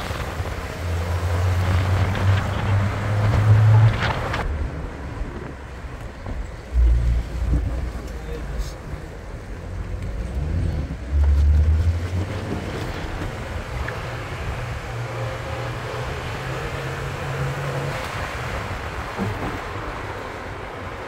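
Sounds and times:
wind buffeting microphone: 0:00.0 - 0:08.1.

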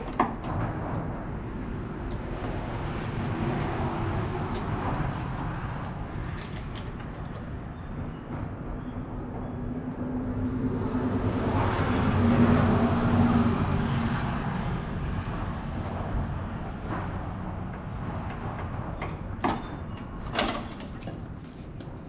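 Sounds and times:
vehicle passing by: 0:09.8 - 0:18.3.

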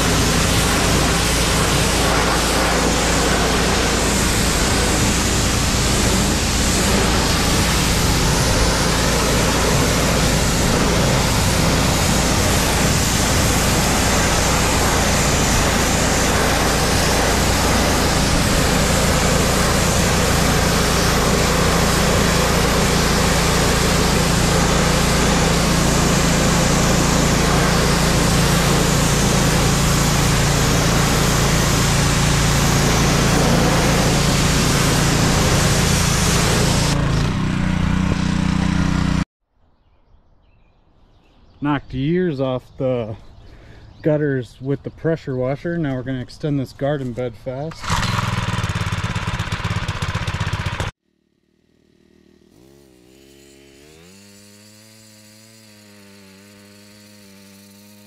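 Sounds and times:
pressure washer spraying water: 0:00.0 - 0:39.2, 0:47.7 - 0:51.0, 0:52.0 - 0:58.0.

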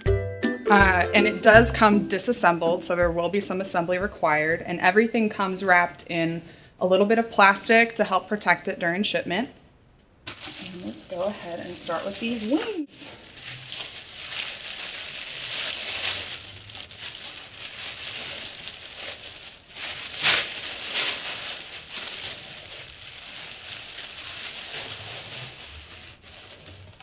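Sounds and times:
plastic wrapping crinkling: 0:10.3 - 0:27.0.

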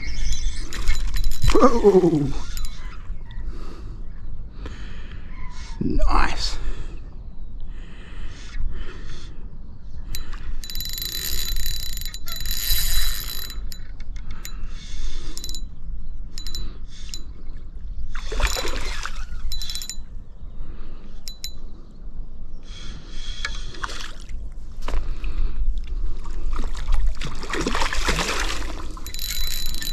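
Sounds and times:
reel drag buzzing and clicking: 0:00.0 - 0:02.9, 0:10.1 - 0:15.7, 0:16.4 - 0:17.3, 0:18.2 - 0:20.1, 0:21.3 - 0:21.6, 0:29.0 - 0:29.9
fishing reel handle cranking: 0:00.1 - 0:02.8, 0:10.1 - 0:14.6, 0:15.2 - 0:15.6, 0:16.4 - 0:17.2, 0:18.4 - 0:20.1, 0:21.3 - 0:21.6, 0:29.0 - 0:29.9.

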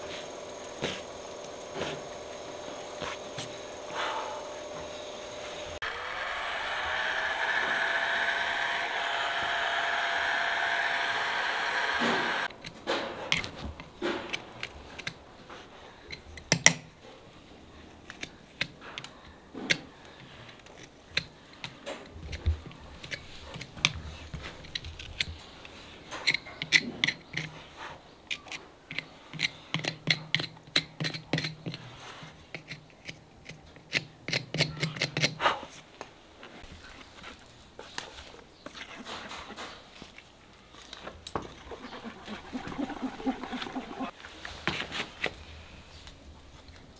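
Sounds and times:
heat gun whining: 0:00.0 - 0:12.5.

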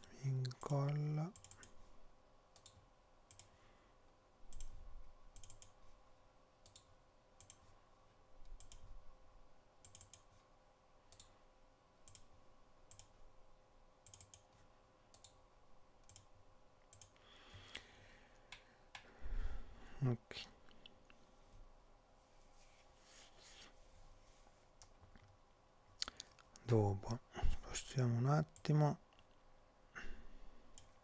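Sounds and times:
faint steady hum: 0:00.0 - 0:31.0
computer mouse clicks: 0:00.4 - 0:01.8, 0:02.5 - 0:03.6, 0:04.5 - 0:05.8, 0:06.6 - 0:07.7, 0:08.4 - 0:08.9, 0:09.8 - 0:10.4, 0:11.1 - 0:11.4, 0:12.0 - 0:12.3, 0:12.9 - 0:13.2, 0:14.0 - 0:15.4, 0:16.0 - 0:16.3, 0:16.9 - 0:17.2, 0:30.7 - 0:31.0.

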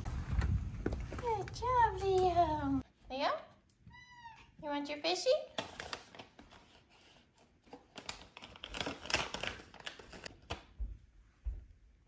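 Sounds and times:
packet crinkling and rustling: 0:05.5 - 0:10.7.

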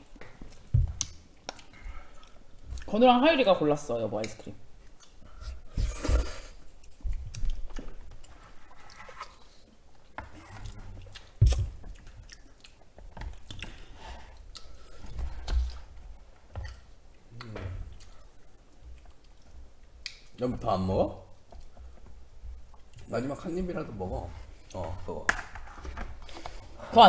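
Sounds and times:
mouth chewing: 0:10.5 - 0:14.9.

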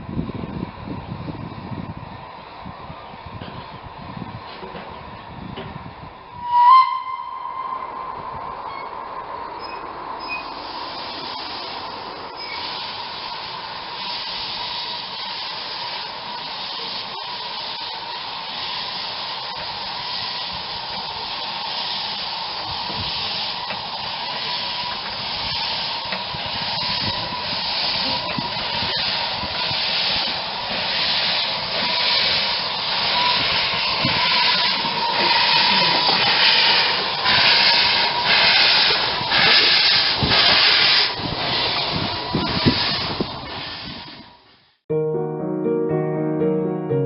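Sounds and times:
steam locomotive hissing steam: 0:09.6 - 0:44.8.

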